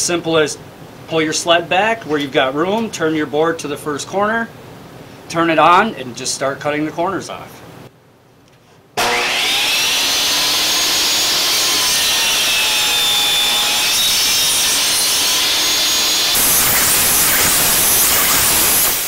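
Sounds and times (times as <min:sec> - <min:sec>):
saw blade rasping through wood: 0:09.0 - 0:19.0
table saw motor and blade whine: 0:09.0 - 0:19.0.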